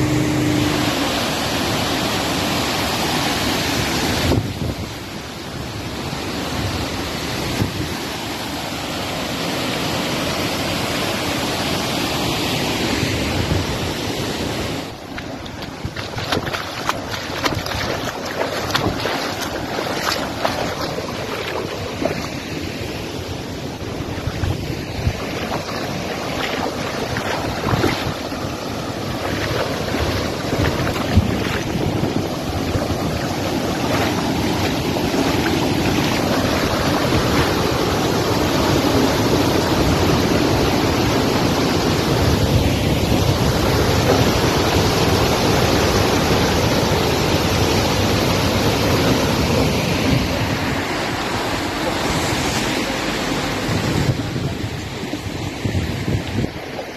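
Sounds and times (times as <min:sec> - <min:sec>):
floodwater rushing: 0:00.0 - 0:56.9
feet splashing in shallow water: 0:14.8 - 0:39.2, 0:48.4 - 0:56.9.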